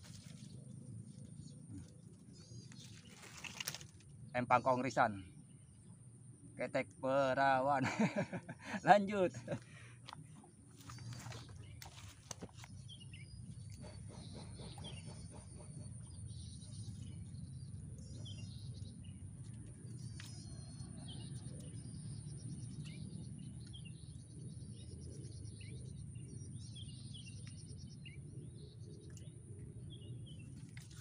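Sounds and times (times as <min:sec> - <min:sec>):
small birds chirping: 0:06.6 - 0:31.0.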